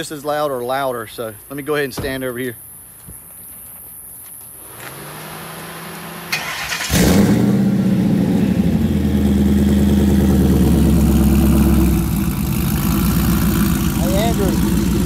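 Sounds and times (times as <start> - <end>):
engine cranking: 6.3 - 7.5
low hum: 7.2 - 15.0
engine idling loudly: 8.2 - 15.0.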